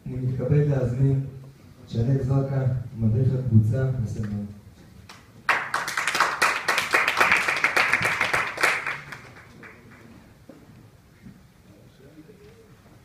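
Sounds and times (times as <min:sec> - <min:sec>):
audience applauding: 0:05.1 - 0:10.1.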